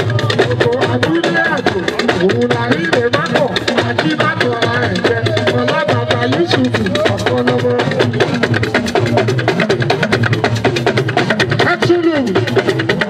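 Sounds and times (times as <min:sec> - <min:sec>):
person singing into a microphone: 0:00.0 - 0:08.1
rapid hand drum strokes: 0:00.0 - 0:13.0.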